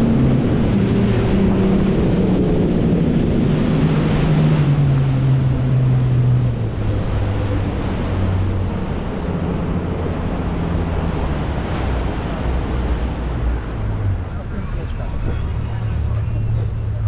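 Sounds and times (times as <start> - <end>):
motorboat engine running: 0.0 - 17.0
rushing water: 0.0 - 17.0
wind: 0.0 - 17.0.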